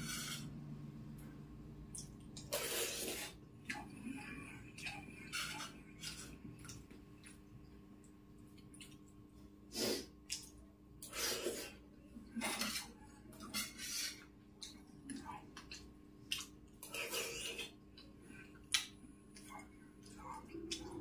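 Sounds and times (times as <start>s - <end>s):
spoon scraping a steel plate: 0.0s - 0.5s, 12.4s - 14.3s.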